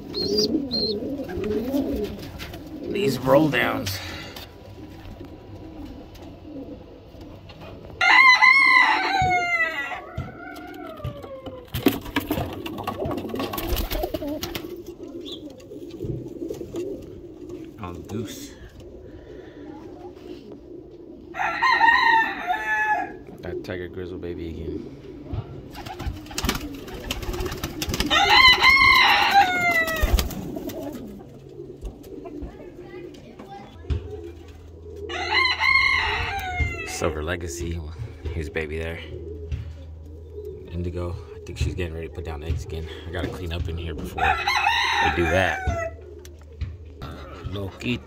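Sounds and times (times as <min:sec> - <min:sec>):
pigeons cooing softly: 0:00.0 - 0:48.0
rooster crowing: 0:08.0 - 0:11.5, 0:21.3 - 0:23.2, 0:28.1 - 0:30.1, 0:35.1 - 0:36.9, 0:44.2 - 0:46.0.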